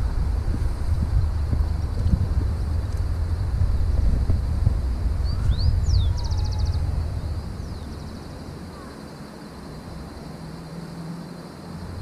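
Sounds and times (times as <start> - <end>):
wind buffeting microphone: 0.0 - 9.0
bird trill: 5.2 - 9.0
birds whistling: 5.2 - 9.0.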